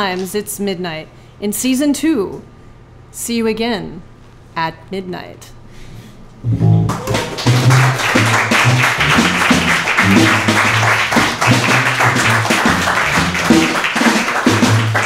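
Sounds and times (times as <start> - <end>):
plucked strings: 6.4 - 13.8
bass line: 6.4 - 15.0
live band playing: 6.4 - 15.0
audience applause: 6.8 - 15.0.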